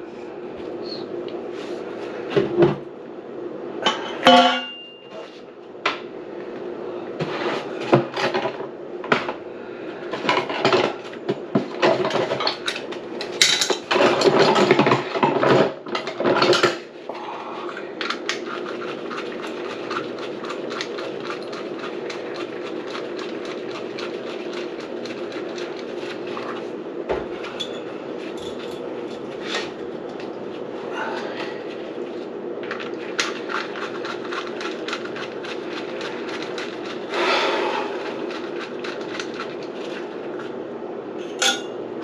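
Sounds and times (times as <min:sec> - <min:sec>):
mechanical hum: 0:00.0 - 0:42.0
objects clattering at sink: 0:11.6 - 0:16.8.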